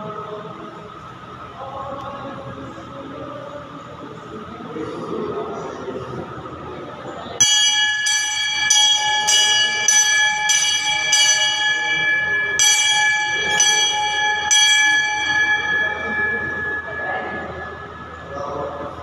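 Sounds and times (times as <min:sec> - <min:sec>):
large brass bell ringing: 0:07.4 - 0:19.0.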